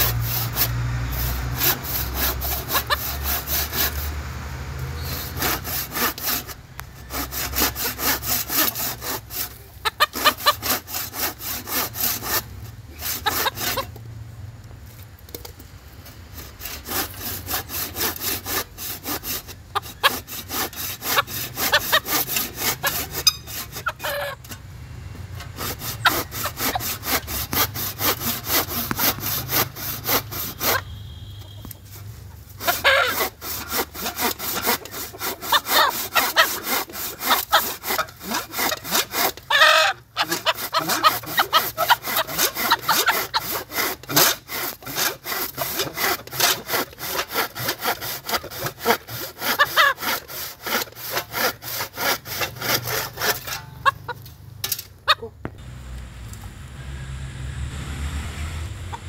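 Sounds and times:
rhythmic rasping: 0:00.0 - 0:04.1, 0:05.3 - 0:13.9, 0:16.4 - 0:24.6, 0:25.5 - 0:54.3
rooster calling: 0:22.8 - 0:24.6, 0:30.2 - 0:31.9, 0:32.6 - 0:33.4, 0:53.6 - 0:54.2, 0:55.0 - 0:55.4.

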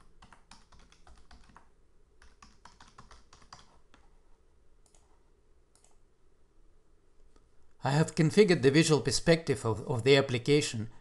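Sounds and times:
typing on keyboard: 0:00.0 - 0:04.1.

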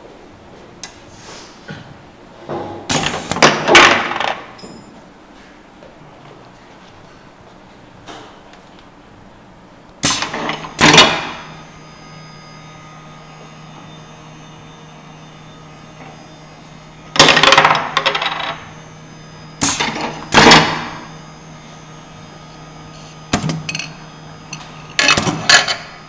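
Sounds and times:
steady low hum: 0:04.4 - 0:26.0
pneumatic actuator clacks with hiss: 0:10.0 - 0:11.2, 0:19.6 - 0:20.7, 0:23.3 - 0:25.8.

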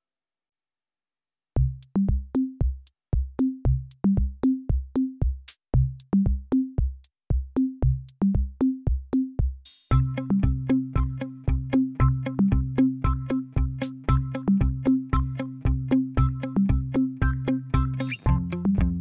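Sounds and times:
drum machine beat: 0:01.6 - 0:19.0
electronic music: 0:09.9 - 0:19.0.

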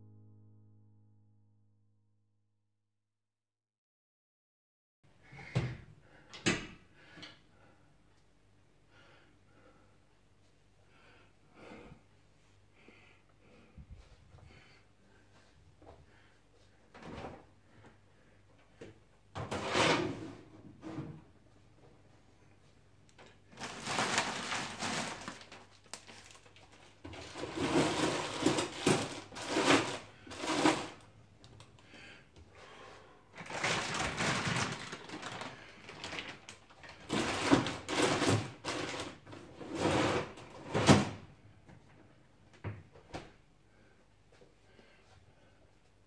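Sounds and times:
plastic bag rustling and crinkling: 0:23.4 - 0:31.0, 0:33.3 - 0:40.1.

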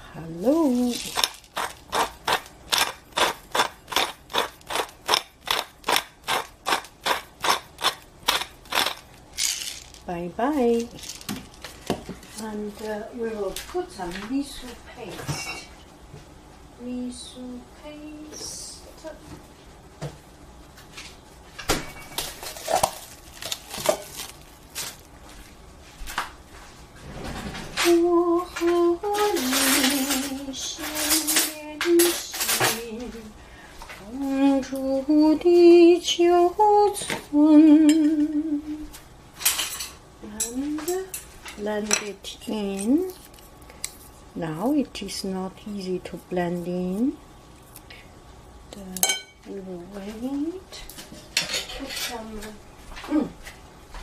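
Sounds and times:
pepper mill grinding: 0:00.5 - 0:12.0, 0:22.2 - 0:25.0, 0:42.6 - 0:44.2
kitchenware clinking: 0:00.6 - 0:12.1, 0:15.2 - 0:15.8, 0:21.6 - 0:23.1, 0:28.6 - 0:32.8, 0:39.4 - 0:43.4, 0:49.0 - 0:49.4, 0:50.8 - 0:52.2.

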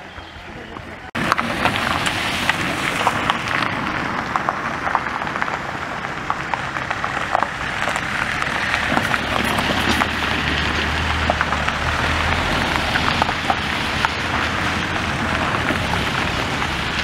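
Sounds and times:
car engine running low: 0:00.0 - 0:17.0
tyres crunching over gravel: 0:00.0 - 0:17.0.

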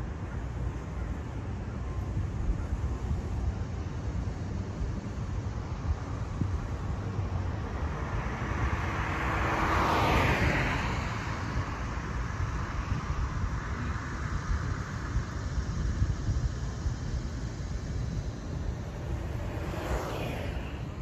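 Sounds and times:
low rumble of street noise: 0:00.0 - 0:21.0
car driving past: 0:07.7 - 0:11.5, 0:18.8 - 0:21.0.

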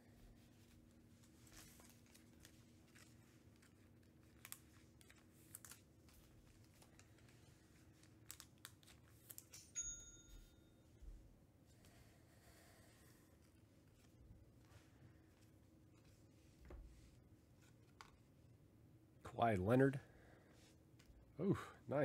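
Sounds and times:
packaging crinkling and tearing: 0:01.6 - 0:09.6
high ringing tone: 0:09.7 - 0:11.0.

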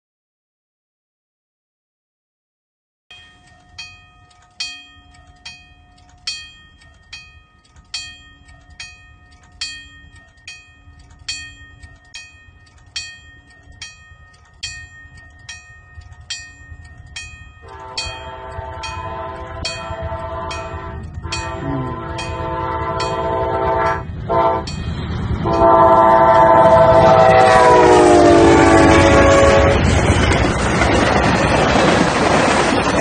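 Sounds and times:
crossing bell ringing: 0:03.1 - 0:32.0
low rumble of train: 0:03.5 - 0:33.0
locomotive horn: 0:17.6 - 0:24.8, 0:25.4 - 0:30.0.

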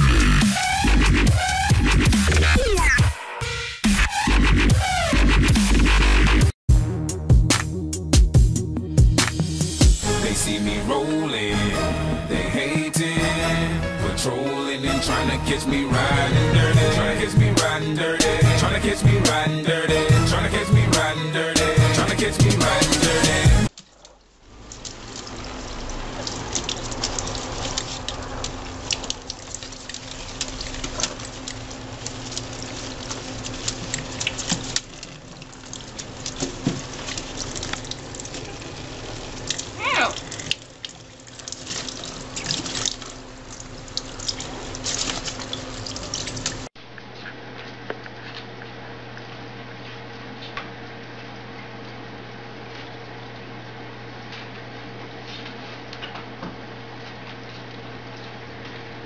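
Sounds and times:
parrot splashing in water: 0:24.0 - 0:46.7
tap water running into sink: 0:24.5 - 0:46.7.

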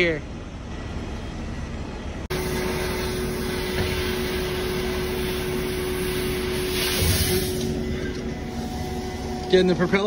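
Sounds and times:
steady hum: 0:00.0 - 0:10.0
cutting torch hissing: 0:02.4 - 0:09.4.

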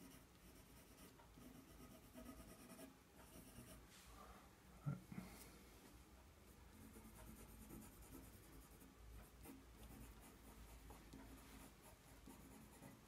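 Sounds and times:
pencil scratching on paper: 0:00.0 - 0:03.8, 0:06.5 - 0:13.0.

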